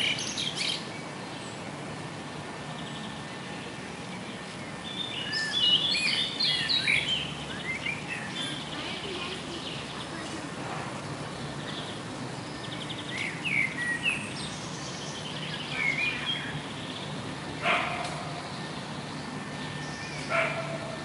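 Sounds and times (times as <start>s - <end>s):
songbird chirping: 0.0s - 21.0s
steady low background noise: 0.0s - 21.0s.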